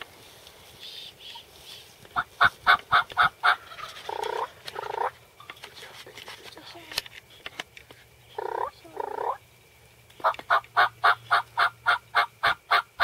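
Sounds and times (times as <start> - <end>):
turkey calls and yelps: 10.2 - 13.0.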